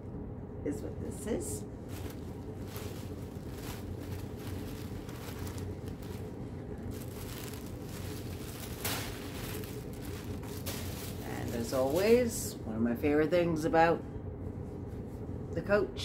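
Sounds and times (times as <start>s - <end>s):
low room hum: 0.0s - 16.0s
tissue paper rustling: 1.8s - 12.5s.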